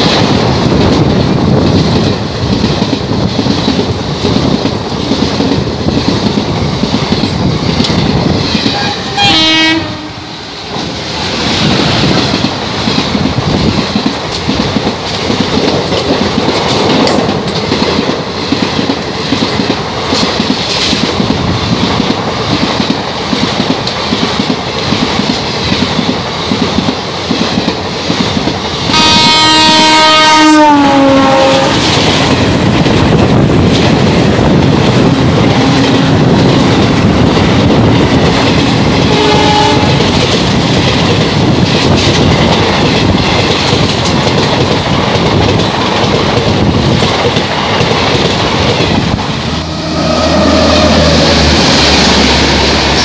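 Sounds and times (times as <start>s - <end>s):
train rushing past: 0.0s - 53.0s
locomotive horn: 8.7s - 10.3s, 28.9s - 31.8s, 39.0s - 40.0s, 49.7s - 51.5s
short horn blast: 8.8s - 10.2s, 29.0s - 31.8s.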